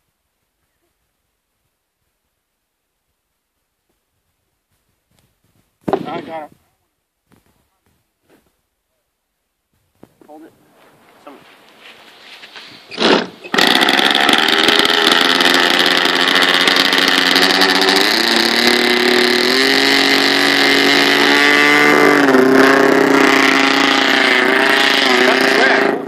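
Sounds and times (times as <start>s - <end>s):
electric starter spinning: 12.9s - 26.0s
model plane engine running: 13.5s - 26.0s.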